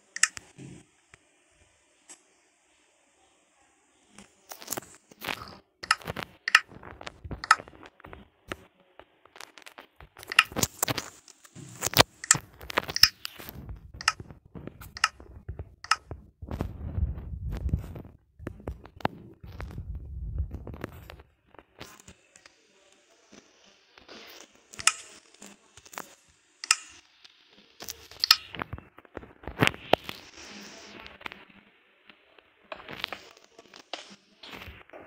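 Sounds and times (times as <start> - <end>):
low rumble: 15.3 - 21.1.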